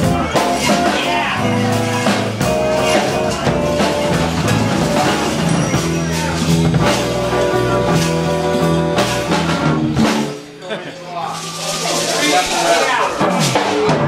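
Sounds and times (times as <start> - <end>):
electric guitar: 0.0 - 10.4
drum kit beat: 0.0 - 10.6, 11.3 - 14.0
keyboard: 0.0 - 14.0.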